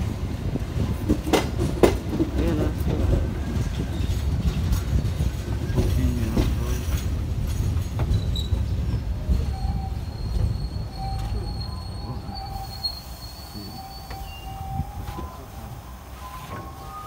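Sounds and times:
train wheels rumbling on rail: 0:00.0 - 0:17.0
high steady squeal: 0:08.1 - 0:17.0.

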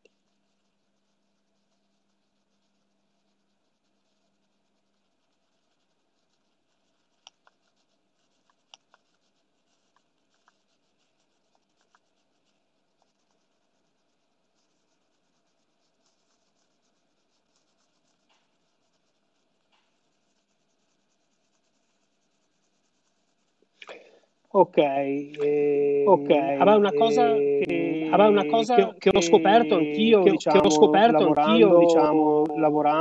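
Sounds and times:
soft scratching: 0:00.0 - 0:33.0
faint small clicks and taps: 0:07.1 - 0:10.7, 0:18.2 - 0:18.6, 0:19.6 - 0:20.0.

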